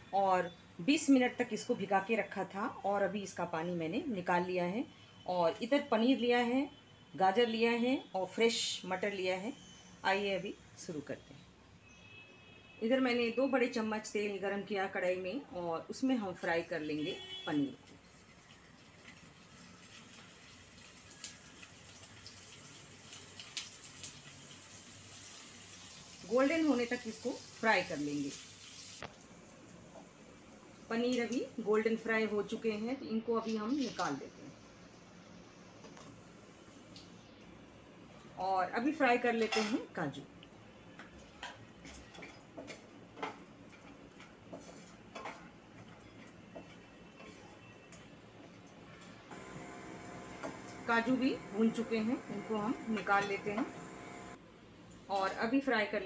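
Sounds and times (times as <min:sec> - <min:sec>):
oil sizzling: 0:17.9 - 0:32.4, 0:49.3 - 0:54.4
crackles and pops: 0:21.0 - 0:22.2, 0:23.1 - 0:24.4
wooden spatula scraping pan: 0:44.5 - 0:45.4.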